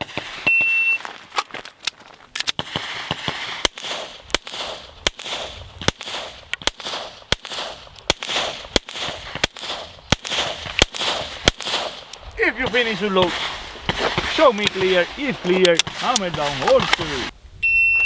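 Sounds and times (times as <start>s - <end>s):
pistol shots with ringing echo: 2.6s - 15.1s.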